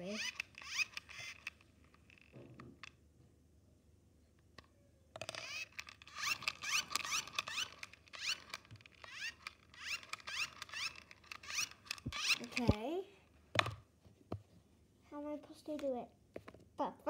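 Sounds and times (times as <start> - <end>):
plastic cap squeaking and scraping: 0.0 - 2.4, 5.2 - 12.8
small clicks: 0.1 - 3.0, 4.6 - 12.8.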